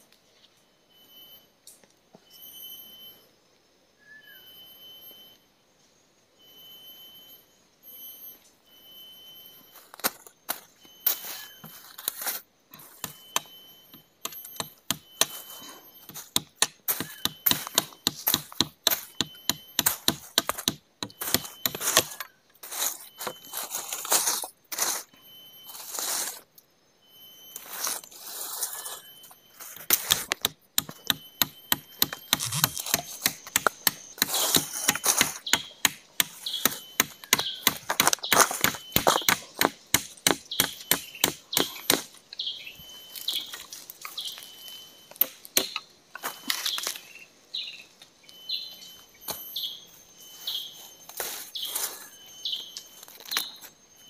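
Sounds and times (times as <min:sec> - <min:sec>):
faint high-pitched whine: 0:00.0 - 0:54.0
tool chopping wood: 0:16.0 - 0:22.2, 0:29.9 - 0:42.1, 0:45.2 - 0:45.8.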